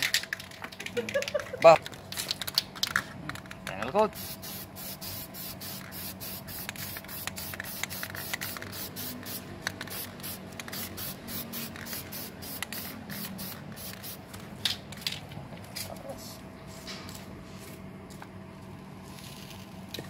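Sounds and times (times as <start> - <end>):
spray paint can hissing bursts: 4.1 - 14.3.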